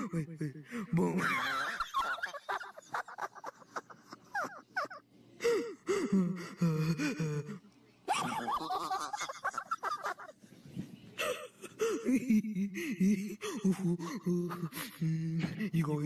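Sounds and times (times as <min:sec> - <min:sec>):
man laughing: 0:08.1 - 0:10.3.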